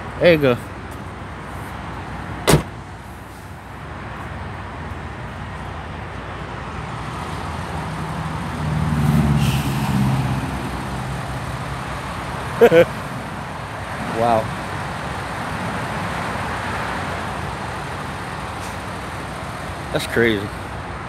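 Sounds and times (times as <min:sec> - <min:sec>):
road traffic passing: 0:00.0 - 0:21.0
vehicle door slamming: 0:02.4 - 0:02.8
passing vehicle engine: 0:02.7 - 0:21.0.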